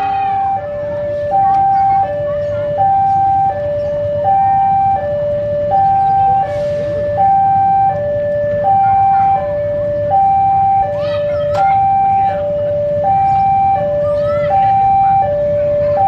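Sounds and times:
two-tone crossing alarm: 0.0s - 16.0s.

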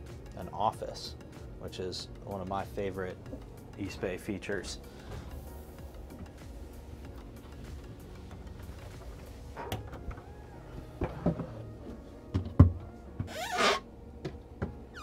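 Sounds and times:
squeaking rub of wood: 13.2s - 13.9s.

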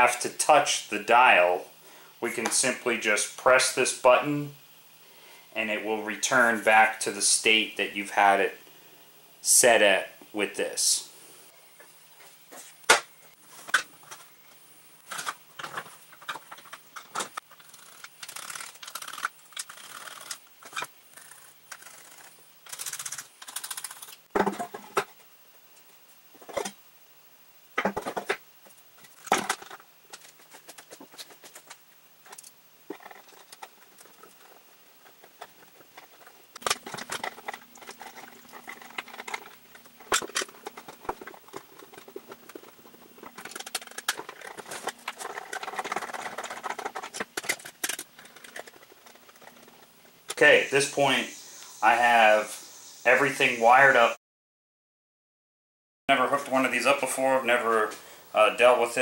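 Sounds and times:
hands handling wires and parts: 15.0s - 25.1s, 29.0s - 50.4s.

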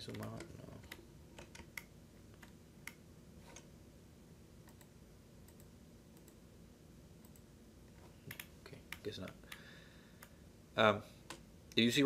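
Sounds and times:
quiet room hum: 0.0s - 12.0s
computer mouse clicks: 4.7s - 4.9s, 7.2s - 7.4s, 8.3s - 9.6s.

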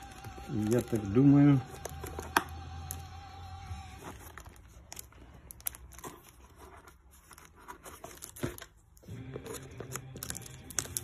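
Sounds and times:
cardboard tearing and crinkling: 3.8s - 11.0s.

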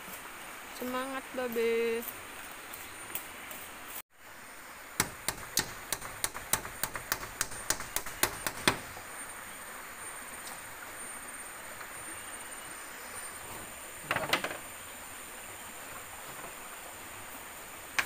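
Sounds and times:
hammer tapping a nail: 5.0s - 8.8s.

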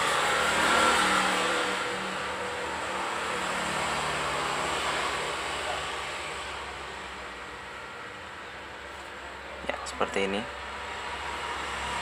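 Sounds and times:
vehicle engine: 0.0s - 12.0s.

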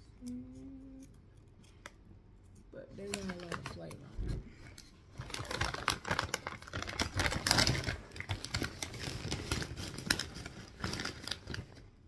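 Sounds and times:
plastic bag crinkling: 3.0s - 4.0s, 5.1s - 12.0s.

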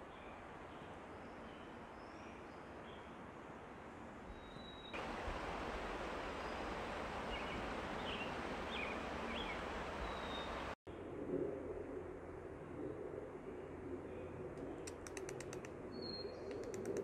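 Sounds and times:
creek rushing: 5.0s - 10.8s.

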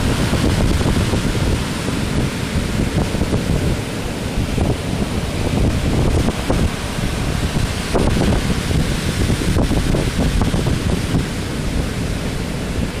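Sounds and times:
heavy surf breaking: 0.0s - 13.0s
wind gusts buffeting microphone: 0.0s - 13.0s.

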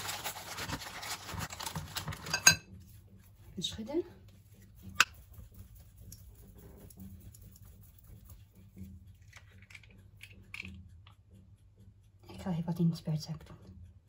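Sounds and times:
hands handling kitchen items: 0.0s - 2.6s
low steady hum: 0.0s - 14.0s.

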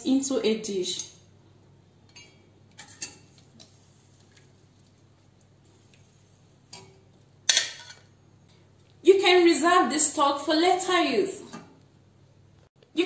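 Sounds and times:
utensil clinking against steel pot: 2.1s - 3.3s.

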